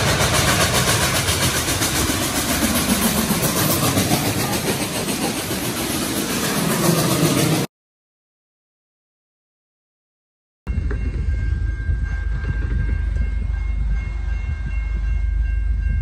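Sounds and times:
train locomotive engine rumbling: 0:00.0 - 0:07.7, 0:10.7 - 0:16.0.

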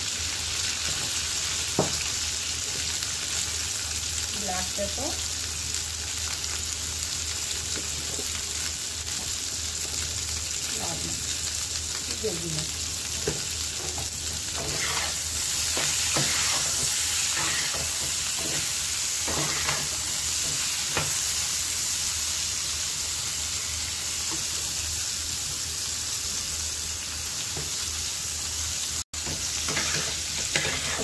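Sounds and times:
vegetables sizzling in oil: 0:00.0 - 0:31.0
spatula scraping and tapping: 0:29.2 - 0:31.0.

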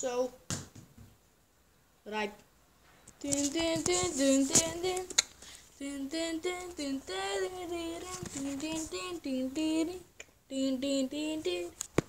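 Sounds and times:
child singing: 0:03.2 - 0:05.2, 0:05.8 - 0:11.8.

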